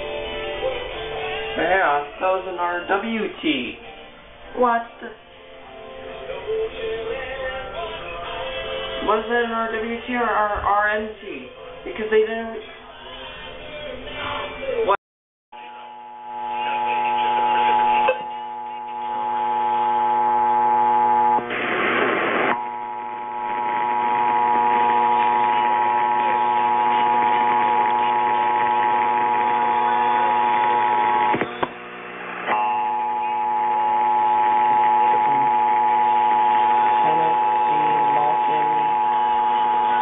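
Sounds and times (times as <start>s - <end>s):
burst of noise: 21.2s - 22.6s.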